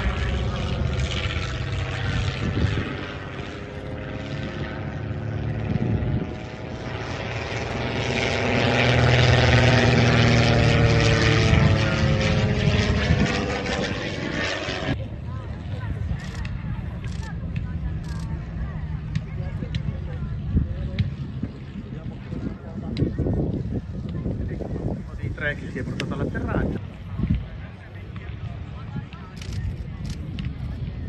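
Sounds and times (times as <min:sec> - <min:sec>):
propeller plane engine droning: 0:00.0 - 0:31.0.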